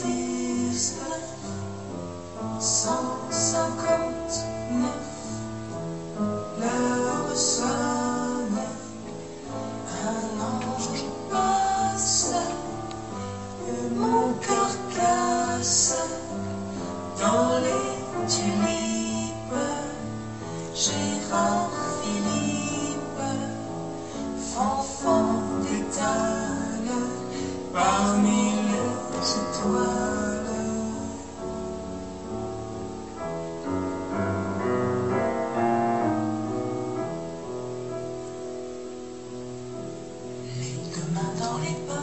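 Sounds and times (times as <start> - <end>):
woman singing with instruments: 6.5 - 31.4, 40.4 - 42.0.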